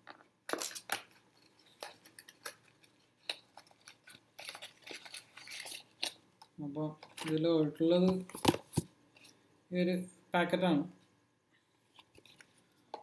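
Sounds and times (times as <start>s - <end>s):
packaging rustling: 0.5s - 6.2s.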